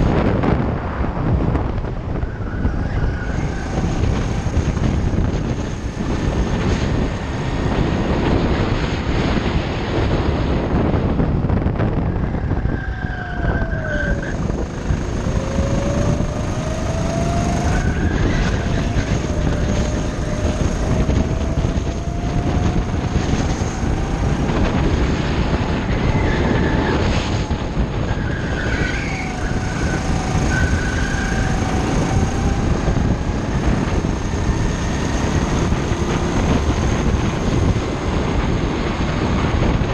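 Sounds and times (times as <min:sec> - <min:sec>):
heavy steady rumble: 0:00.0 - 0:39.9
go-kart engine revving: 0:02.6 - 0:10.9, 0:13.4 - 0:39.9.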